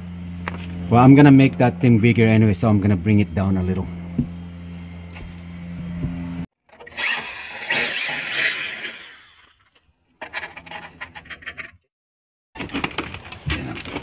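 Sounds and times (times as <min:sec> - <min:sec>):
parts clicking and rattling: 0:09.6 - 0:11.9.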